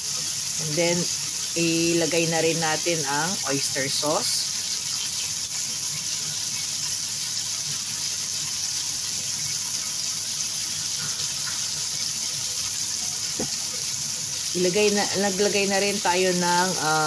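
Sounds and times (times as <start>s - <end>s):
food sizzling in a frying pan: 0.0s - 17.0s.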